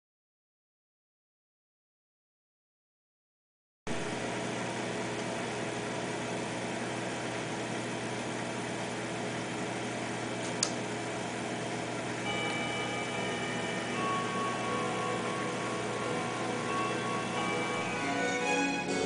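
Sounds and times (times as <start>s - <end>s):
aquarium pumps humming: 3.9s - 19.0s
sustained background music: 12.6s - 19.0s.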